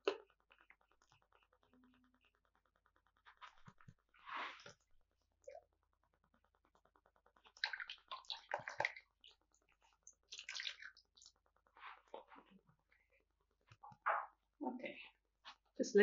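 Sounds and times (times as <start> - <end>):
paintbrush rinsed in water: 7.4 - 12.4.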